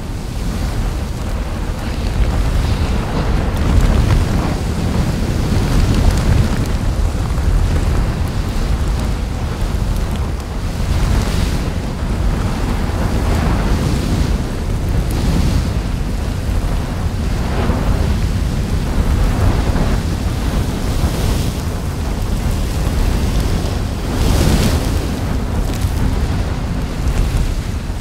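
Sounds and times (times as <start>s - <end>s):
deep rumble with rushing noise: 0.0s - 28.0s.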